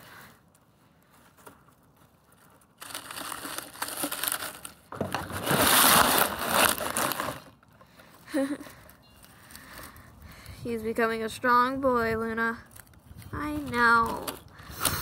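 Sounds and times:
dry straw rustling: 1.0s - 7.5s.

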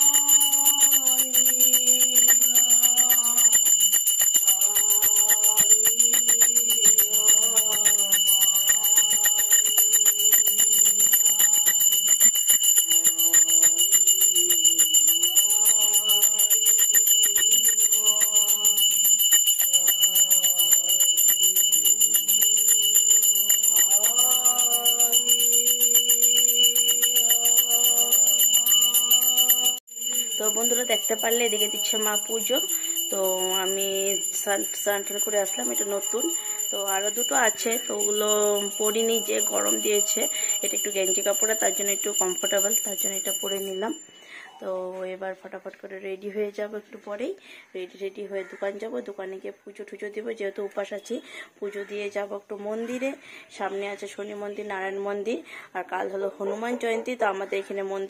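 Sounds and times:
person chanting a prayer: 0.0s - 43.8s
hand bell ringing: 0.0s - 44.4s.

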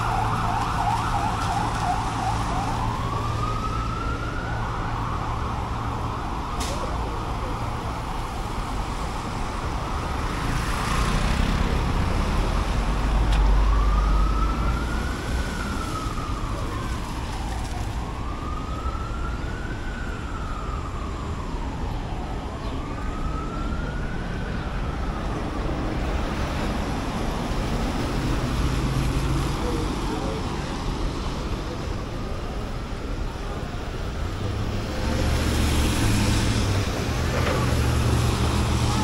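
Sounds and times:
siren wailing: 0.0s - 7.4s, 13.2s - 25.6s
street traffic noise: 0.0s - 39.0s.

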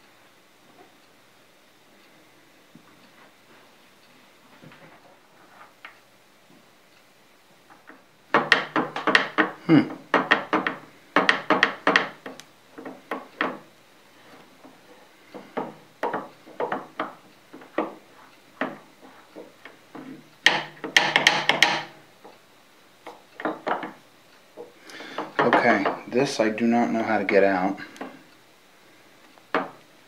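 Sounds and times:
metal clicks and knocks: 7.7s - 13.7s, 15.3s - 18.0s, 18.6s - 22.4s, 23.0s - 24.0s, 24.6s - 26.1s.

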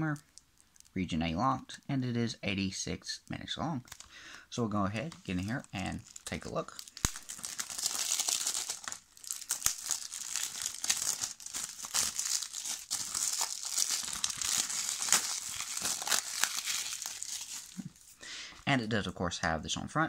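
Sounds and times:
plastic wrap crinkling and tearing: 0.0s - 1.0s, 3.8s - 4.2s, 5.0s - 18.2s.

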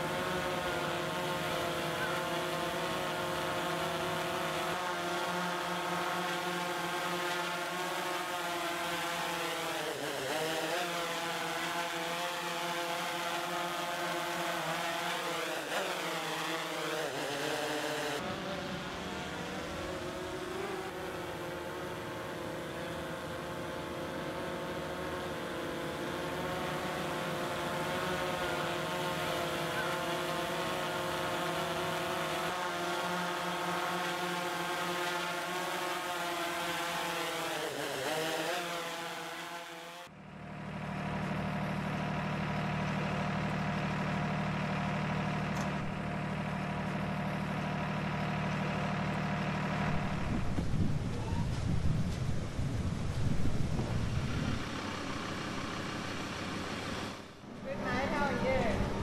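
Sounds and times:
truck engine idling: 40.1s - 59.0s.

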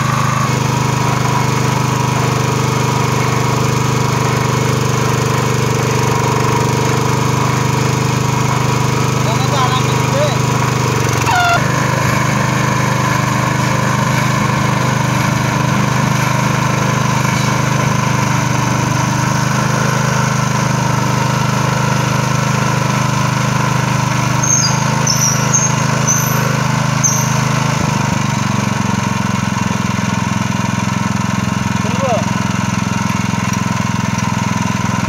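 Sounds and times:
small petrol engine running: 0.0s - 35.0s
high squeaks: 24.3s - 27.8s.

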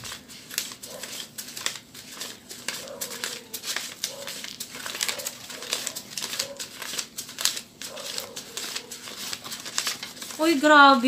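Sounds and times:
paper banknotes rustling: 0.0s - 11.0s.

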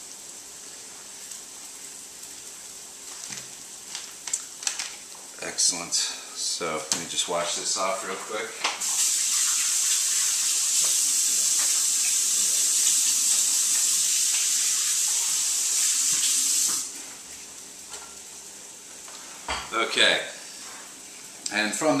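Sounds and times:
kitchen tap running: 8.7s - 17.0s.

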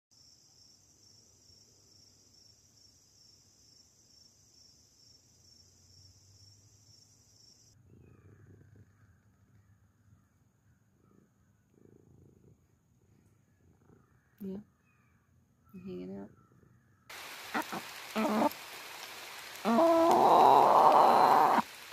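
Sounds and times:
crickets chirping: 0.1s - 8.2s, 17.1s - 21.9s.

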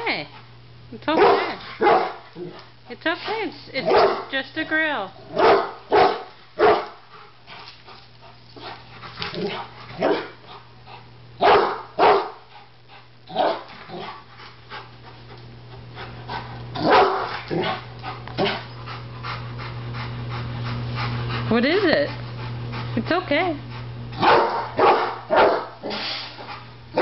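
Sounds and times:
dog barking: 1.1s - 2.2s, 3.8s - 4.3s, 5.3s - 7.0s, 9.4s - 10.4s, 11.4s - 12.4s, 13.3s - 14.1s, 16.8s - 17.3s, 24.2s - 26.0s.

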